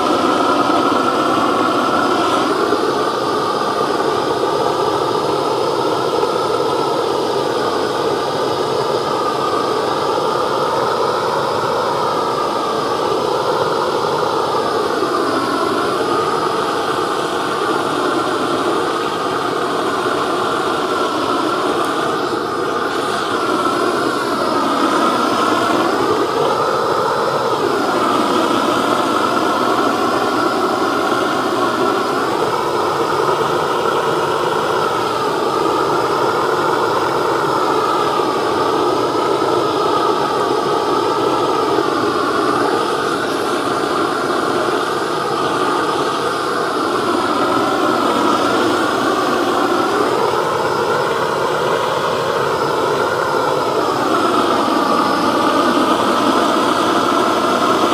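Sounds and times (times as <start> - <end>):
gas blowtorch hissing: 0.0 - 57.9.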